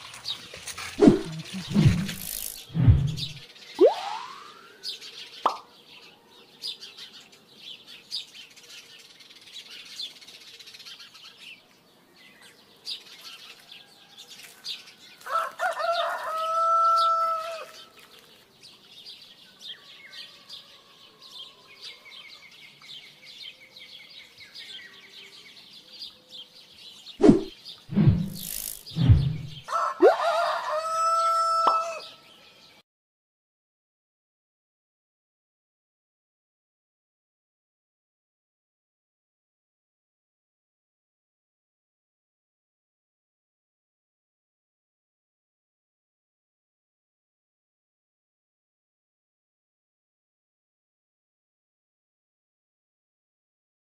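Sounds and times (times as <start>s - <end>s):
rooster crowing: 15.2s - 17.8s, 29.6s - 32.2s
loud thumps: 27.2s - 29.6s.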